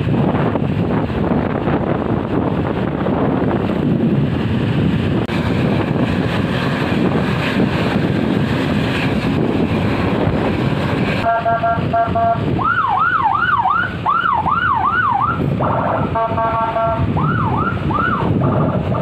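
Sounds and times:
traffic noise: 0.0 - 19.0
wind buffeting microphone: 0.0 - 19.0
vehicle horn blasts: 11.2 - 12.5, 15.6 - 17.1
siren wailing: 11.2 - 19.0.

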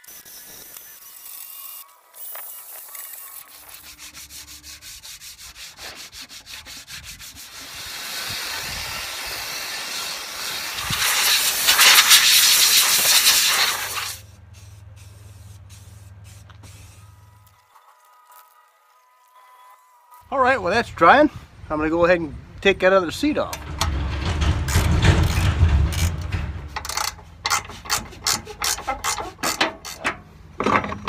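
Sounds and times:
wet sanding rubbing strokes: 2.6 - 20.3, 27.5 - 29.6
water spray hissing on metal: 3.2 - 19.4.

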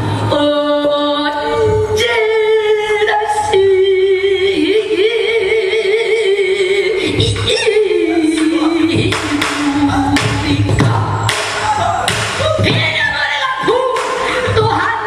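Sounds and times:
barrel drum strokes: 8.2 - 13.1.

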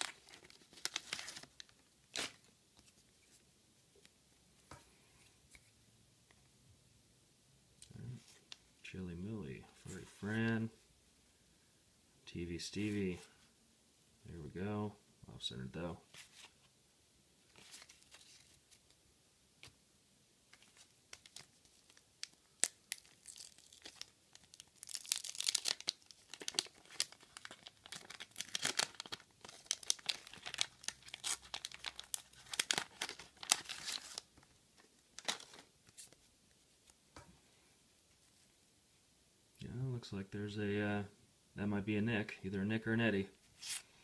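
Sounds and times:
waxed paper wrapper crackling: 0.0 - 3.3, 17.5 - 19.0, 20.5 - 37.0.

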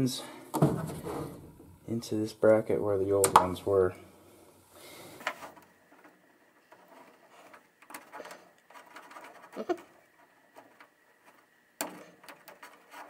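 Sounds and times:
wire rustling: 3.1 - 13.0.

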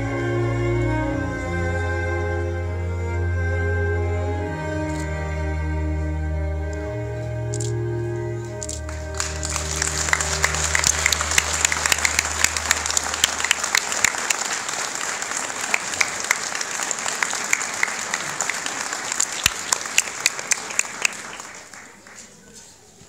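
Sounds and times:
held chord of music: 0.0 - 14.7
audience applause: 8.6 - 22.4.

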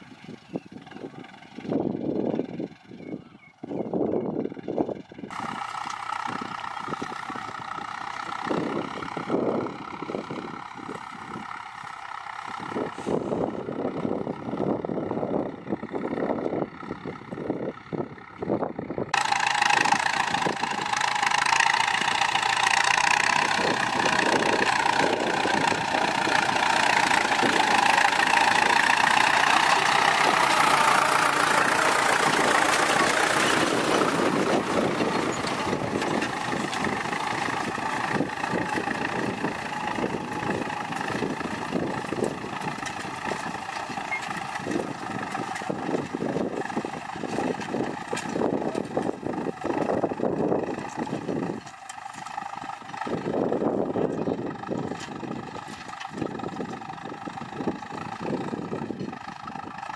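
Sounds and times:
tractor diesel engine clattering: 0.0 - 59.9.

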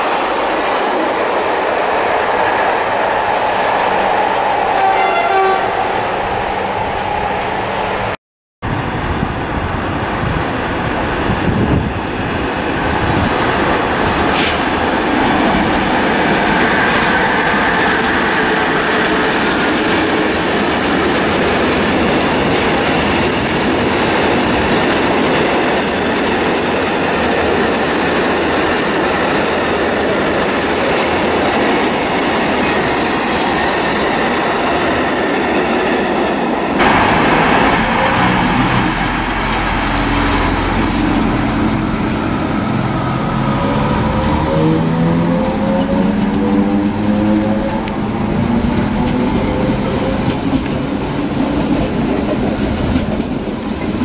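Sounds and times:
train wheels on rails: 8.8 - 54.0
electric train humming: 9.0 - 25.2, 25.8 - 54.0
clickety-clack over rail joints: 12.9 - 36.2, 36.8 - 54.0.

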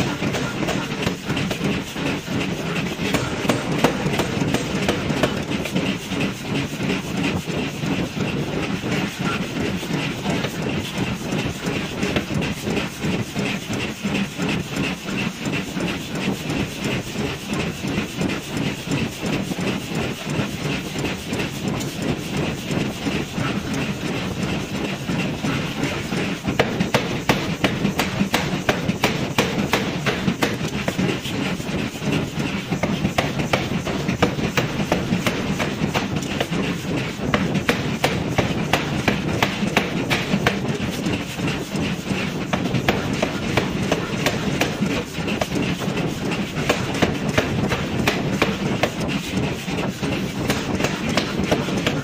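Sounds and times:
power hammer striking hot steel: 0.0 - 7.7, 22.8 - 52.0
machine hiss and clatter: 0.0 - 52.0.

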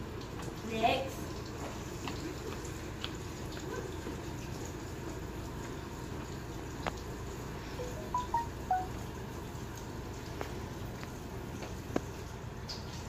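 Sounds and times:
water running from sink tap: 0.0 - 13.0.

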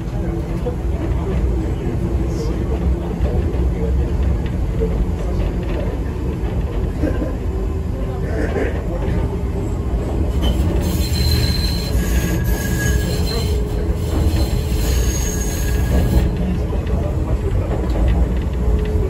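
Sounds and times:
electric train rumbling: 0.0 - 19.0
high-pitched wheel squeals: 10.4 - 16.3.

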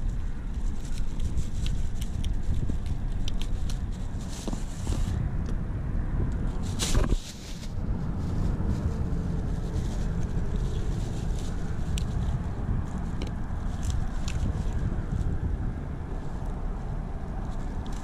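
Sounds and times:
brief rustle: 0.0 - 5.2, 6.4 - 15.3
wind buffeting microphone: 0.0 - 18.0.

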